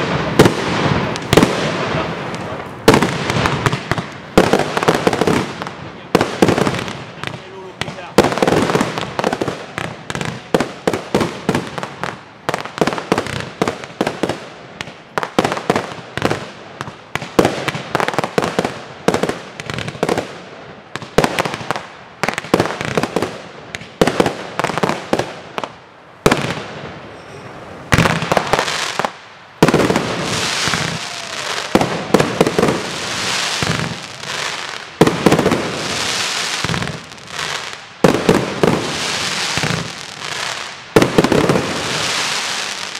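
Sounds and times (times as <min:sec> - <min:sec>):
crackling firework stars: 0:00.0 - 0:42.9.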